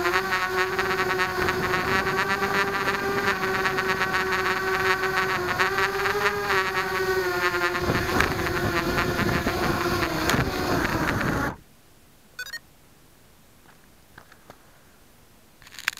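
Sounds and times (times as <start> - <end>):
quadcopter propellers buzzing: 0.0 - 11.6
high electronic beeps: 12.4 - 12.6.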